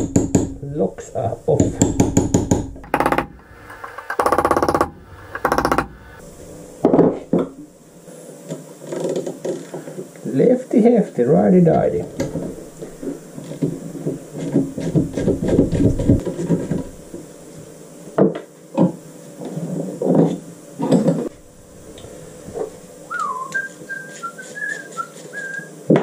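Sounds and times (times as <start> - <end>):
man whistling: 23.1 - 25.8.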